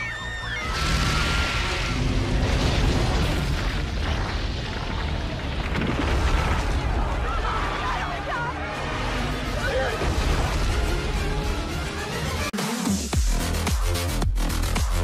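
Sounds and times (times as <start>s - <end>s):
booms and crashing debris: 0.6s - 11.6s.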